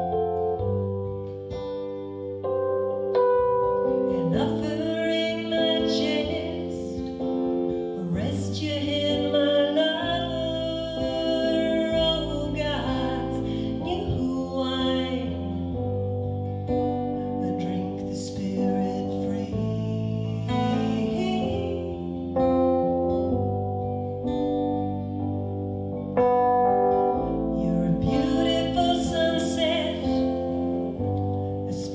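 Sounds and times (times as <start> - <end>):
keyboard chords: 0.0 - 31.9
woman singing folk song: 3.9 - 23.2, 27.2 - 31.9.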